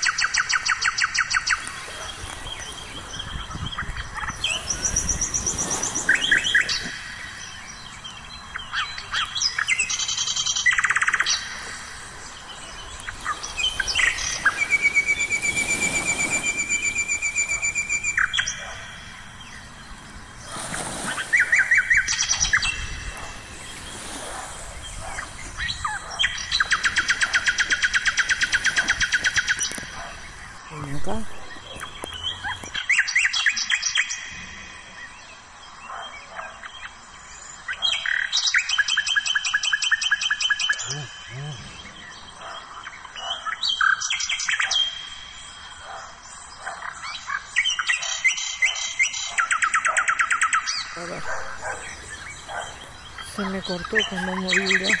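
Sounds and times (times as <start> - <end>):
long steady bird whistle: 0.0 - 30.6
bird chirps: 0.0 - 37.0, 37.6 - 55.0
birds singing trills: 0.0 - 55.0.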